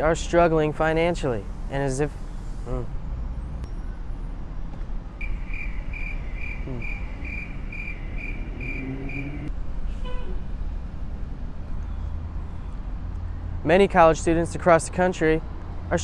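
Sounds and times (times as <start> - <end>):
road traffic noise: 0.0 - 16.0
high chirps: 5.2 - 9.5.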